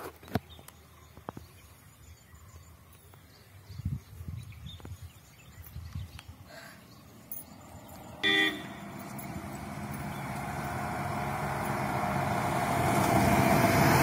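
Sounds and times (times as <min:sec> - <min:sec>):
vehicle approaching: 0:06.9 - 0:14.0
vehicle horn toot: 0:08.2 - 0:09.0.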